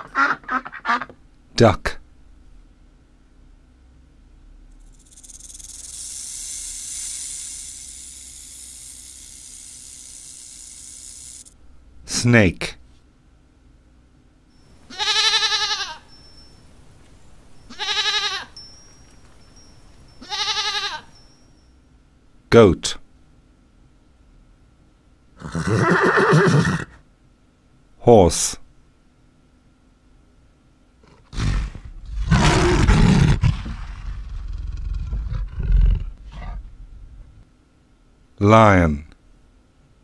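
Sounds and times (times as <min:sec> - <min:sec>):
goat bleating: 0:14.9 - 0:16.0, 0:17.7 - 0:18.6, 0:20.2 - 0:21.1
lion roaring: 0:31.0 - 0:37.3.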